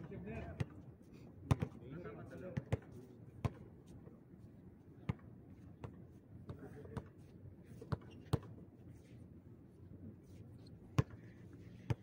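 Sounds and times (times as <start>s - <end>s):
basketball bouncing on concrete: 1.5s - 1.8s, 11.0s - 11.2s.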